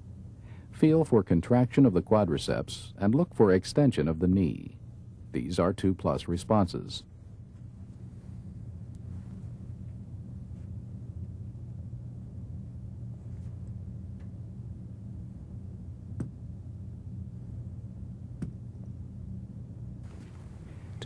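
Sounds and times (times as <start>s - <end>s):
low hum: 0.0s - 21.0s.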